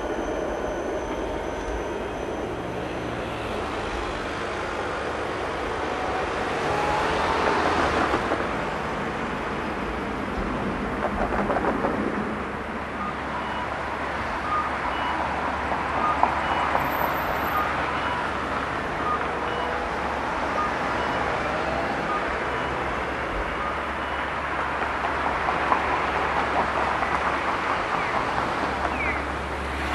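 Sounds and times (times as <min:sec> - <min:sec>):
city street traffic: 0:00.0 - 0:29.9.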